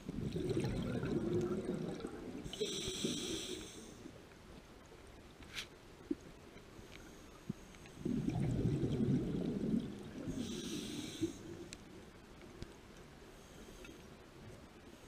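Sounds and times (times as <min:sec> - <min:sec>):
exhaled bubbles rumbling underwater: 0:00.0 - 0:03.0, 0:07.9 - 0:11.7
regulator inhalation hiss: 0:02.5 - 0:04.1, 0:10.3 - 0:11.6.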